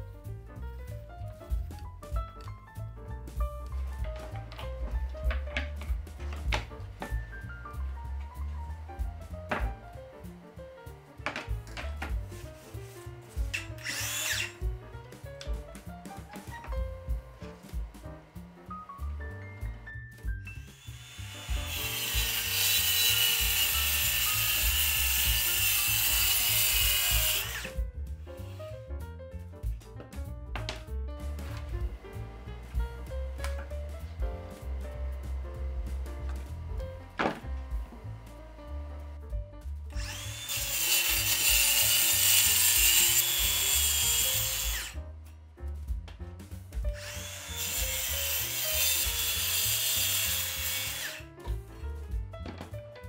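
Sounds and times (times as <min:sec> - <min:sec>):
background music with bass: 0:00.0 - 0:13.9, 0:14.5 - 0:22.3, 0:23.4 - 0:53.0
circular saw cutting plywood: 0:05.6 - 0:14.7, 0:20.5 - 0:28.8, 0:39.9 - 0:45.0, 0:46.9 - 0:51.2.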